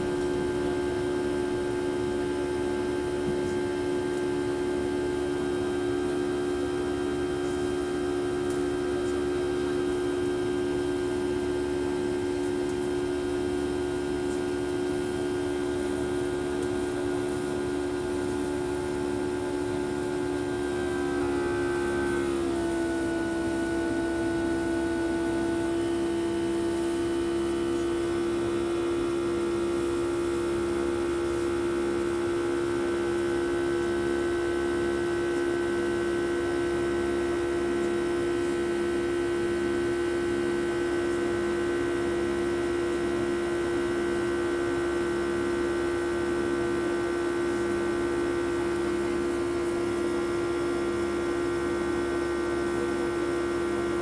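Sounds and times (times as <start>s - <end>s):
jet engines humming in cabin: 0.0s - 54.0s
slow regular throb: 0.0s - 54.0s
higher whining tones: 18.7s - 27.8s.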